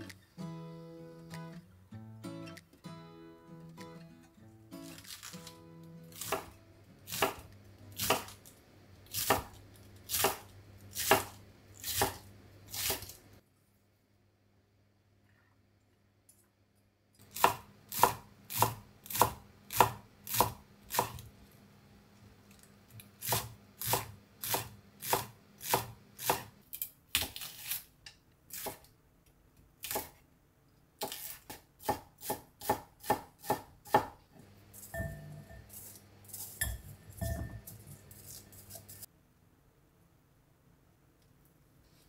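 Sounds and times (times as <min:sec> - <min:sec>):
knife chopping on wooden board: 0:07.1 - 0:08.4, 0:09.1 - 0:10.4, 0:11.0 - 0:13.1, 0:17.4 - 0:21.2, 0:23.2 - 0:26.5, 0:31.0 - 0:34.2.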